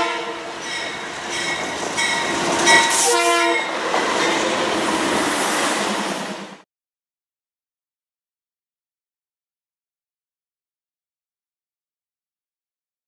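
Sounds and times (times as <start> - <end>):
train horn blasts: 0.0 - 0.6, 2.7 - 3.8
moving train rushing: 0.0 - 6.6.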